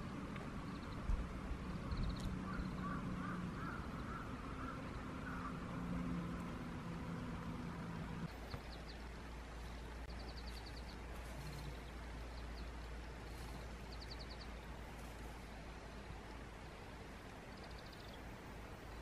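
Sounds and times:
low droning hum: 0.0 - 17.5
low steady rumble: 0.0 - 19.0
bird trilling: 2.4 - 5.6.

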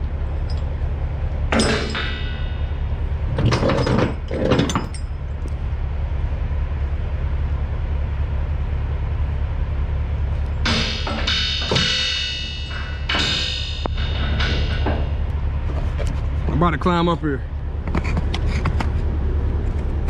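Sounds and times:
low rumble: 0.0 - 20.0
chain binders clanking: 0.4 - 0.7, 1.5 - 5.2.

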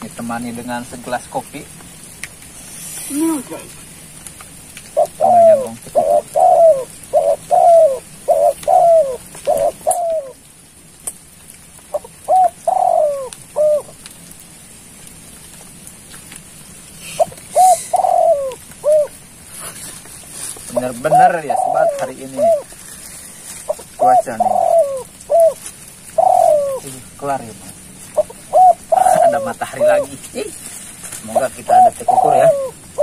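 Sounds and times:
dove cooing: 4.8 - 10.5, 11.9 - 14.0, 17.0 - 19.9, 20.7 - 33.0.

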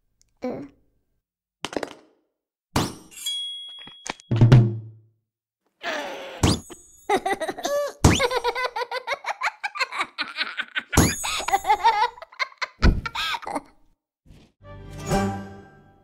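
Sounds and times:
cartoon cat laughing: 7.1 - 13.8.

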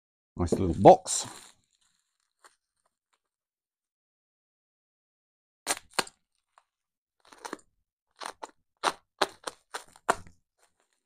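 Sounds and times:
packing paper crinkling: 0.7 - 2.8.

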